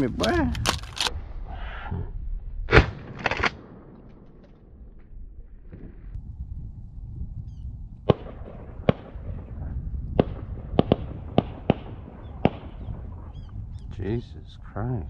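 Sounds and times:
shotgun shots: 8.1 - 9.5, 10.2 - 13.1.

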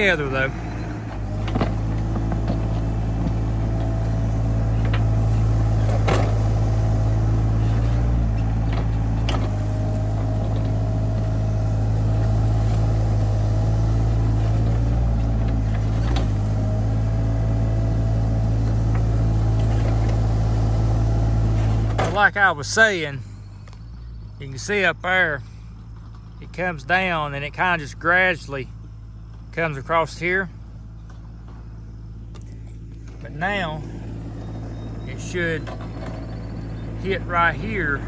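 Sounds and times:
excavator diesel engine running: 0.0 - 38.0
hydraulic whine: 31.4 - 38.0.

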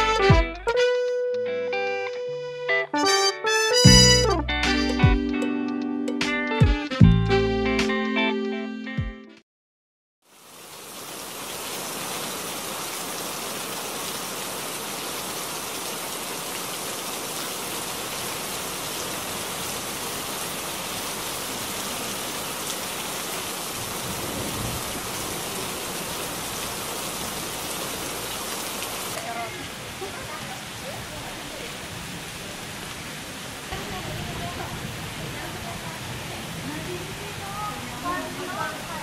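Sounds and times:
rain on paving and pool: 10.2 - 39.0.

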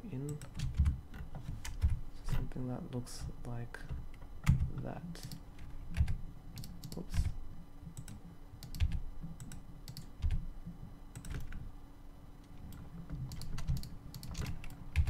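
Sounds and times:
keyboard key presses: 12.7 - 15.0.

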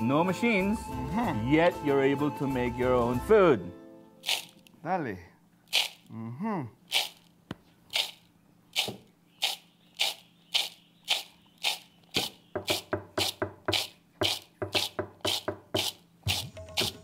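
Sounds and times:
beans tossed in a bowl: 4.2 - 4.7, 5.7 - 6.1, 6.9 - 7.3, 7.9 - 17.0.

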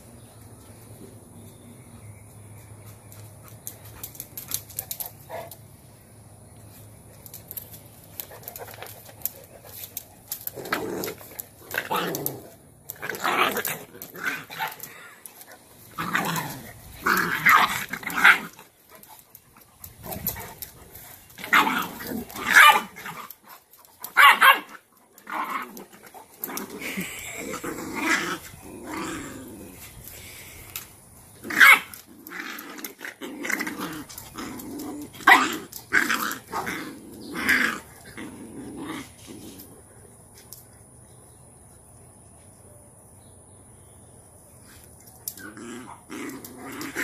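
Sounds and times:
dogs growling: 9.3 - 30.6, 31.4 - 39.9, 45.4 - 47.0
dogs barking: 22.4 - 23.3, 24.1 - 24.8.

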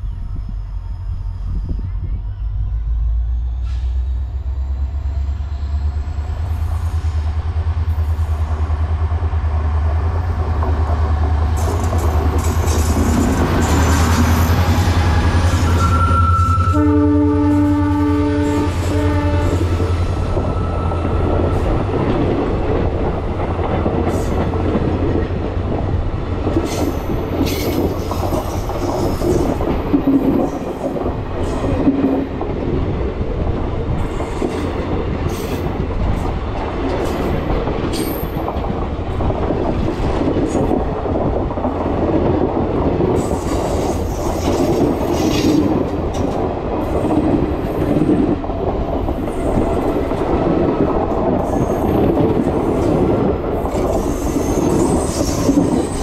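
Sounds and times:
diesel locomotive engine rumble: 0.0 - 56.0
train wheels clickety-clack: 6.2 - 16.7, 18.5 - 56.0
train horn: 15.6 - 21.0.

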